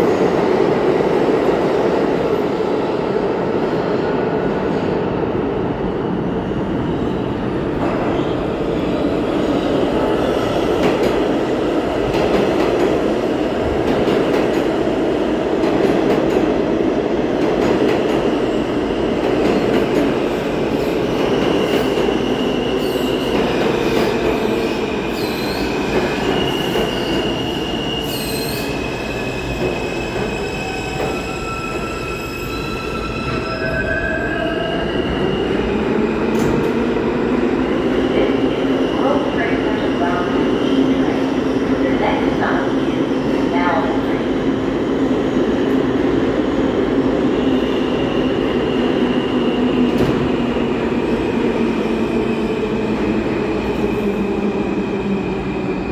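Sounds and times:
high-pitched brake squeals: 26.4s - 28.8s, 30.3s - 34.8s.

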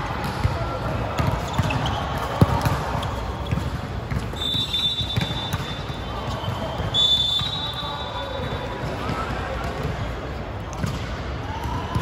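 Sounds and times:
court noise: 0.0s - 12.0s
players' voices: 0.0s - 12.0s
referee's whistle blast: 4.4s - 8.7s.

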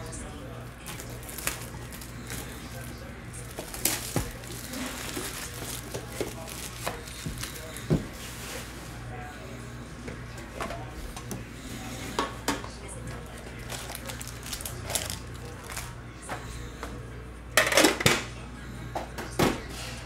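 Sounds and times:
foil packs crinkling: 0.0s - 8.4s, 13.2s - 16.0s.

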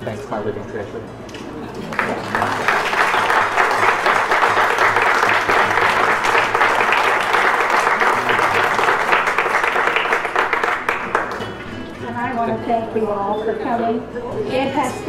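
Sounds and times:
crowd applauding: 1.8s - 12.0s.

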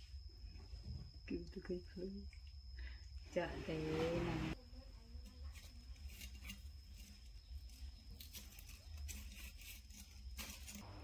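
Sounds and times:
rustling and scratching: 3.5s - 11.0s
crisp rustle: 5.2s - 11.0s.

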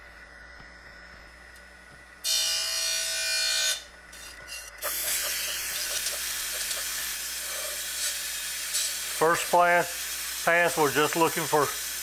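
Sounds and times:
grinder wheel cutting steel hiss: 4.8s - 12.0s.

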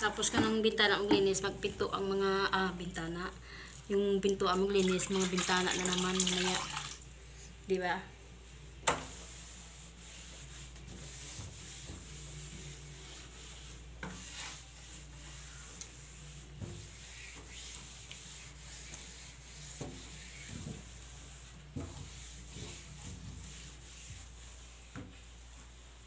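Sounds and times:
cloth scrubbing wooden door: 8.5s - 26.0s.

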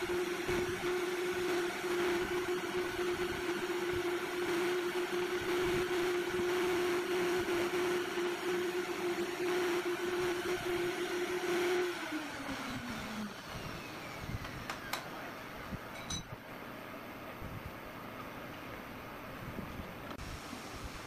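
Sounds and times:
electric power tool on wood: 0.0s - 15.1s
motor winding down: 0.0s - 15.4s.

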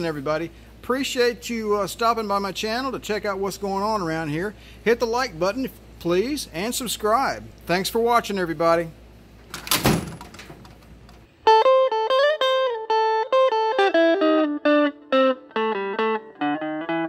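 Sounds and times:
electric guitar single notes: 11.4s - 17.0s.

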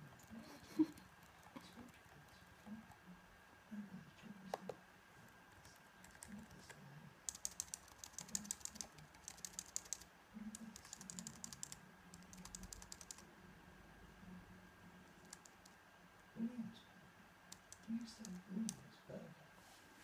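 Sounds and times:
typing on computer keyboard: 5.6s - 13.2s, 15.2s - 15.8s, 17.5s - 18.8s.

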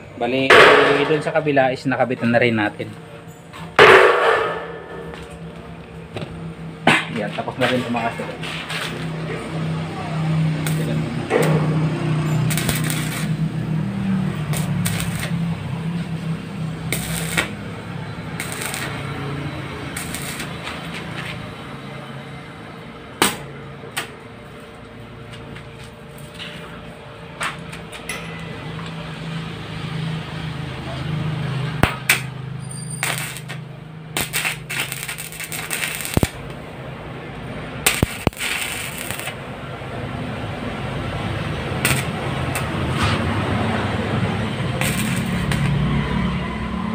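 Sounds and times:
welding arc buzzing and crackling: 3.8s - 21.7s, 31.6s - 46.9s.

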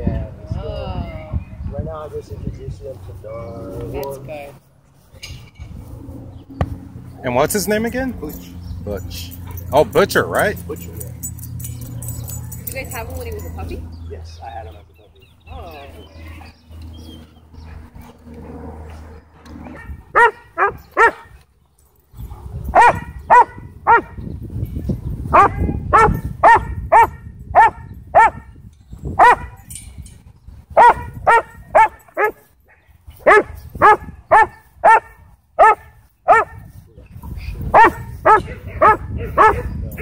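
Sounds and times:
dog barking: 19.7s - 21.3s, 22.7s - 24.2s, 25.3s - 28.4s, 29.2s - 29.6s, 30.8s - 32.5s, 33.2s - 36.7s, 37.7s - 39.8s.

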